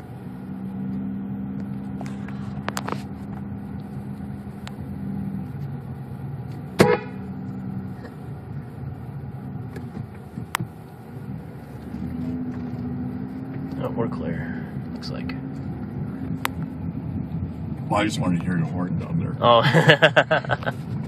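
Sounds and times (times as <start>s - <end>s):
car driving drone: 0.0s - 21.0s
car horn toot: 6.7s - 7.4s.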